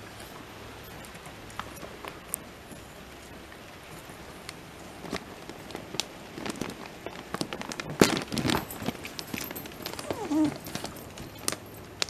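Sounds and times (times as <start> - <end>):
plastic pouch crinkling: 5.0 - 12.0.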